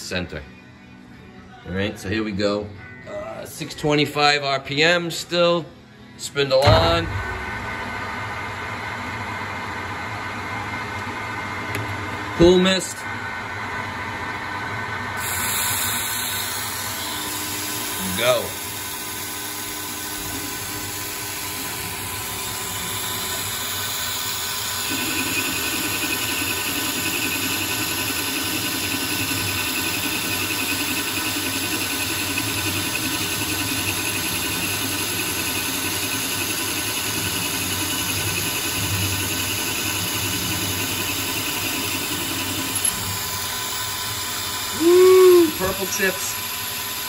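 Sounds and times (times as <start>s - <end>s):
lathe spindle running: 7.1s - 47.0s
metal cutting noise: 15.2s - 47.0s.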